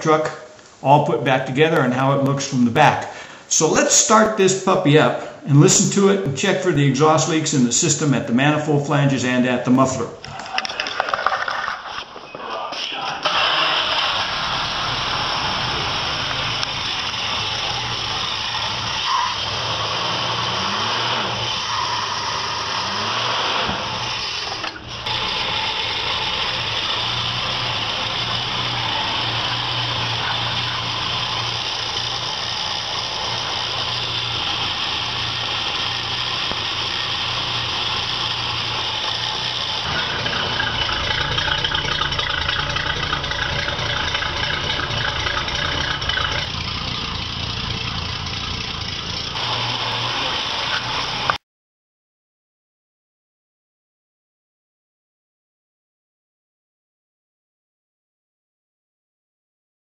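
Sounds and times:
truck engine idling: 13.3s - 20.9s, 24.8s - 51.4s.

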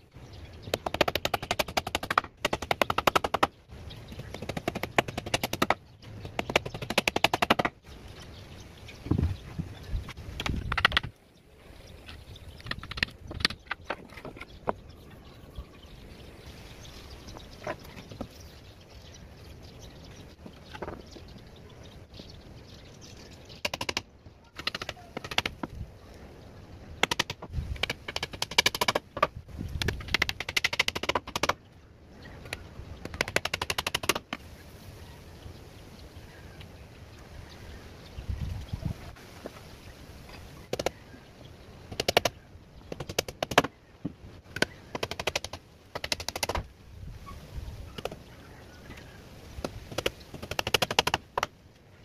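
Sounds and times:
hammer driving nails into wood: 4.4s - 7.7s.

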